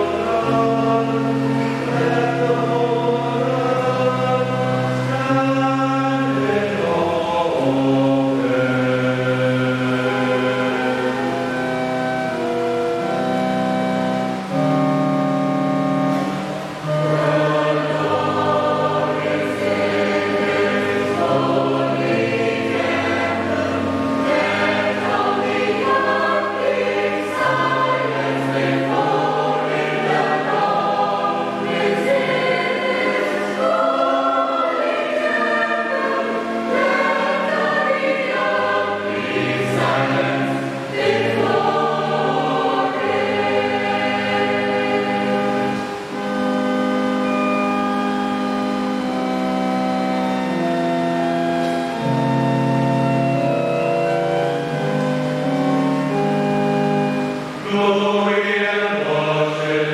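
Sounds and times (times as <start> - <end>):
choir singing in harmony: 0.0 - 59.9.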